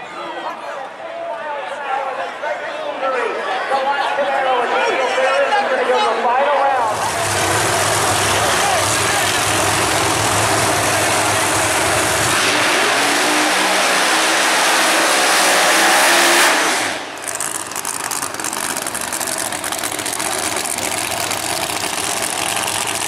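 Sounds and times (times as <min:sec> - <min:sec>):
racing car engines at full throttle: 0:06.8 - 0:23.0.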